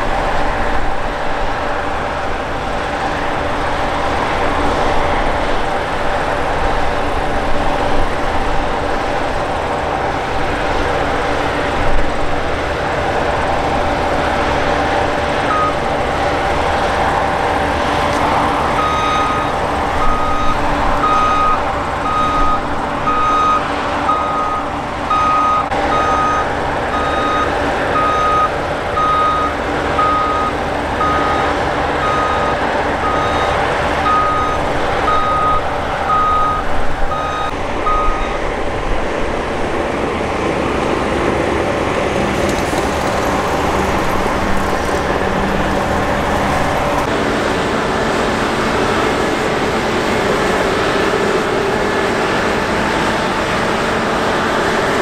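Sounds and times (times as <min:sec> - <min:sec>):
harvesters and tractor running: 0:00.0 - 0:55.0
reversing alarm beeping: 0:15.5 - 0:15.9, 0:18.8 - 0:38.5.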